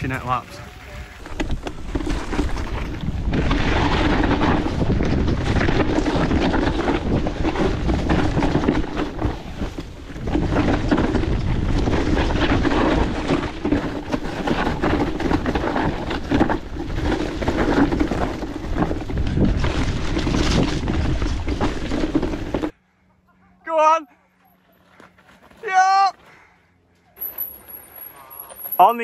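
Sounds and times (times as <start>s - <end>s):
bike tyre noise: 0.0s - 22.8s, 24.3s - 29.0s
wind buffeting microphone: 0.6s - 22.7s.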